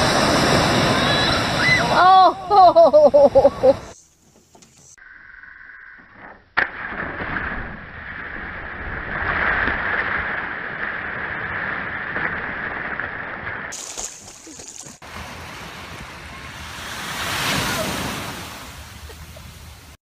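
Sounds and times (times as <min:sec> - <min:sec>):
person splashing into water: 0:12.0 - 0:15.0.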